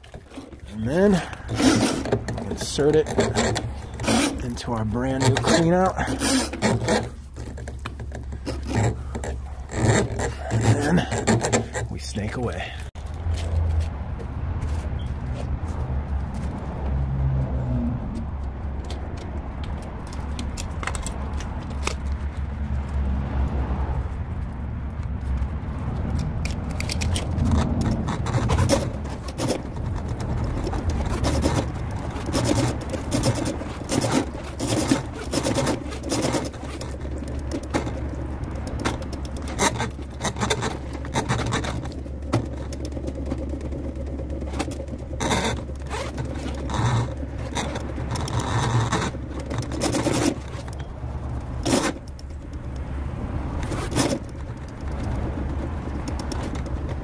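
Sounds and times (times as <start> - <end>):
cable scraping against pipe: 0.0 - 14.0, 25.1 - 57.0.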